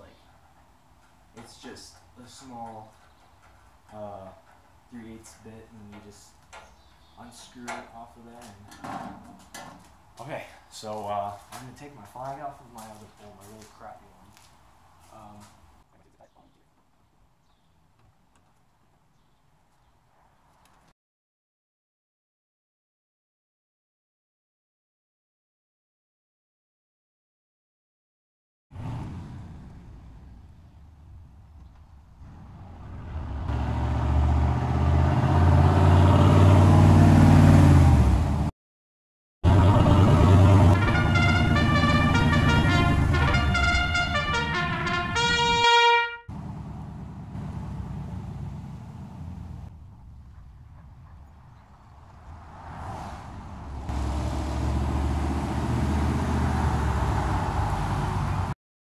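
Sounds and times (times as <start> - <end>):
vehicles driving past: 28.7 - 38.5, 39.5 - 58.6
pickup truck engine running: 46.3 - 49.7.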